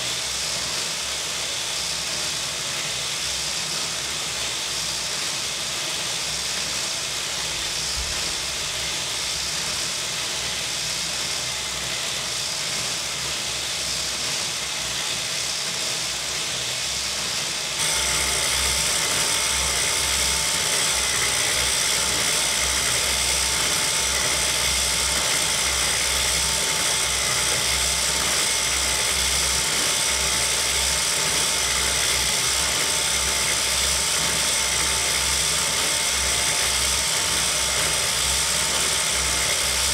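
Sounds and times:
knitting machine whirring: 17.8s - 39.9s.

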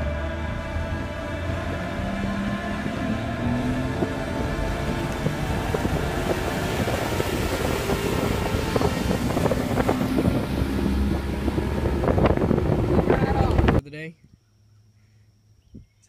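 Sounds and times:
boat motor rumbling: 0.0s - 13.8s
wind buffeting microphone: 0.0s - 14.4s.

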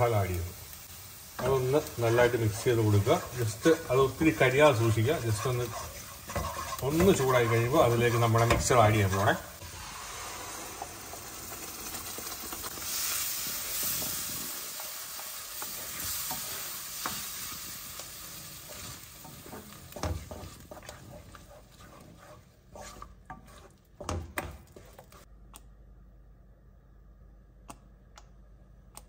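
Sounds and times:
sauce sizzling in a pan: 0.0s - 23.8s
wooden spatula scraping a pan: 1.4s - 9.6s, 11.4s - 25.3s.

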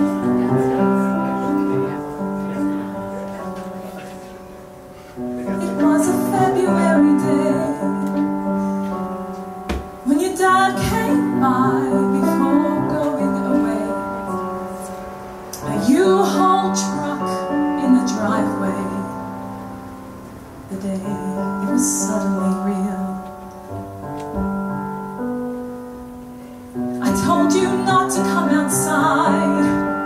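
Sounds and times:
piano chords: 0.0s - 30.0s
woman singing: 5.4s - 8.6s, 10.0s - 19.5s, 20.7s - 23.6s, 27.0s - 30.0s.

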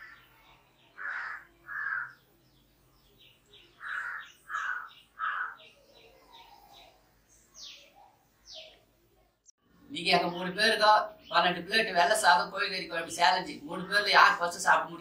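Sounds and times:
harsh caw-like bird calls: 0.0s - 2.3s, 3.6s - 7.0s
small birds chirping: 0.0s - 15.0s.

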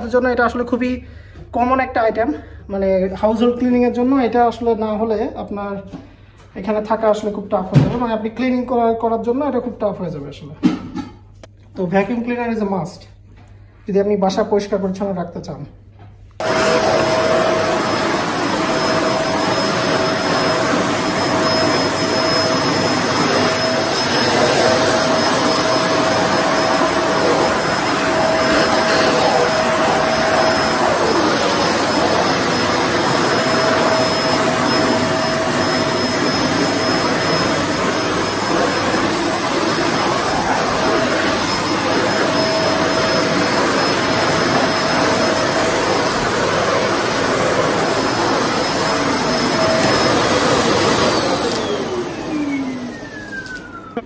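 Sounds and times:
vacuum cleaner running: 16.4s - 54.0s.

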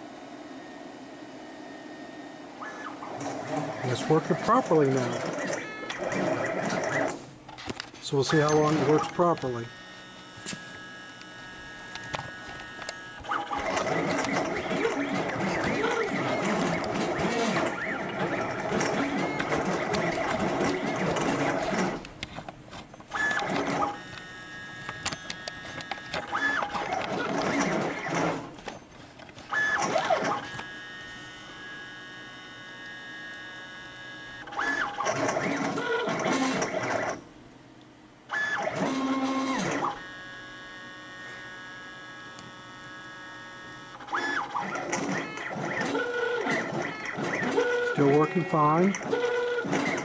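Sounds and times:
machine whine: 0.0s - 37.2s, 38.3s - 50.0s
machine clicks: 12.0s - 24.3s, 24.9s - 30.7s, 44.0s - 50.0s.

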